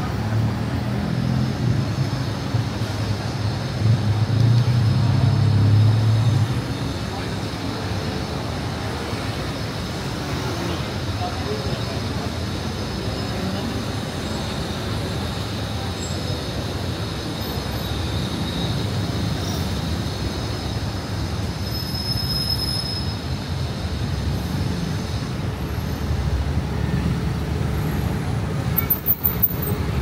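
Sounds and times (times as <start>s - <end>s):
high wheel squeal: 21.6s - 23.5s.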